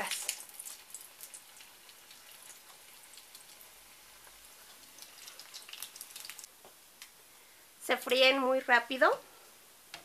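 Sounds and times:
food sizzling in hot oil: 0:00.0 - 0:06.5.

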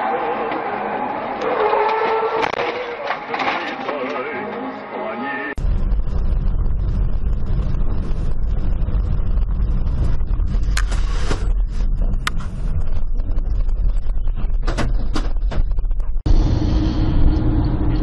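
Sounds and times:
car road drone with hum: 0:05.5 - 0:18.0.

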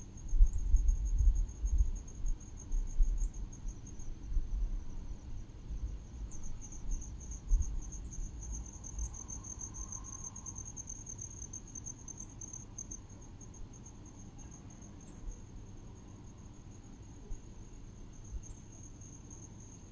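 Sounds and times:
wind rumble on microphone: 0:00.0 - 0:09.9
insects trilling: 0:00.0 - 0:19.9.

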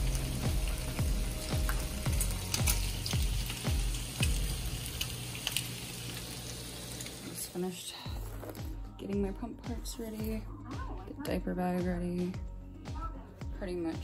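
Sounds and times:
background music with low beat: 0:00.0 - 0:05.1, 0:08.1 - 0:14.0
bacon sizzling in a frying pan: 0:00.0 - 0:07.8.

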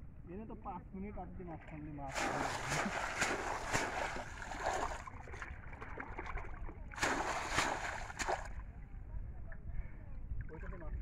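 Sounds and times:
water splashing and sloshing: 0:01.6 - 0:08.8.

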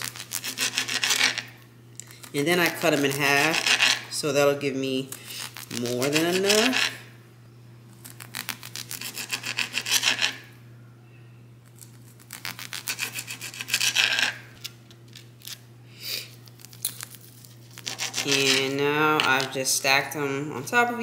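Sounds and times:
knife sawing on cutting board: 0:00.0 - 0:01.5, 0:02.7 - 0:04.0, 0:05.8 - 0:07.0, 0:08.9 - 0:10.4, 0:12.8 - 0:14.4, 0:17.8 - 0:18.8
steady low hum: 0:00.0 - 0:21.0.

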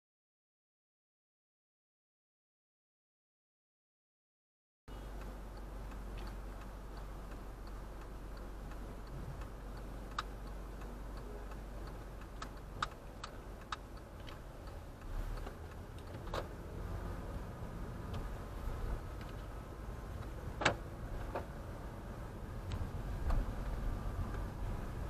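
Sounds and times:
engine humming: 0:04.9 - 0:25.0
turn signal ticking: 0:04.9 - 0:25.0
sharp clicks: 0:09.4 - 0:16.6.

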